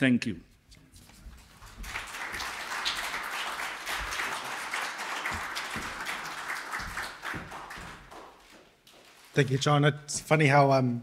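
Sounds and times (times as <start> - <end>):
audience applauding: 1.5 - 9.8.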